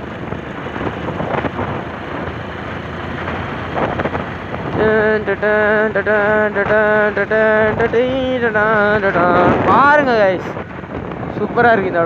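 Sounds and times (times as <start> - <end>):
motorbike road and engine noise: 0.0 - 12.0
wind rushing over microphone: 0.0 - 12.0.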